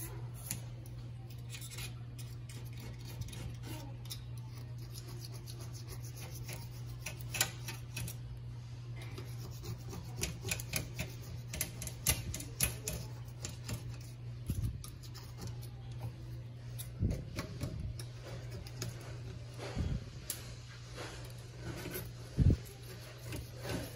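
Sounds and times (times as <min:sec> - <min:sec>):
steady low hum: 0:00.0 - 0:23.9
fingers scraping caulk off metal sink: 0:02.5 - 0:03.9, 0:09.2 - 0:14.1.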